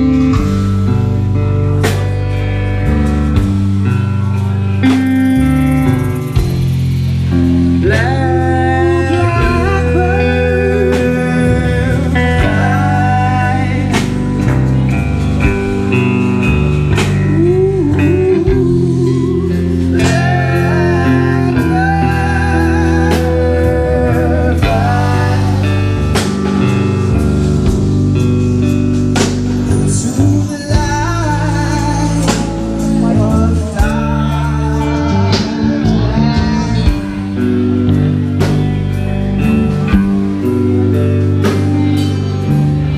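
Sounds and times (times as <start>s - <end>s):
blues band playing: 0.0s - 42.9s
drums: 0.0s - 42.9s
electric bass guitar: 0.0s - 42.9s
person singing: 7.3s - 27.3s, 29.6s - 42.9s.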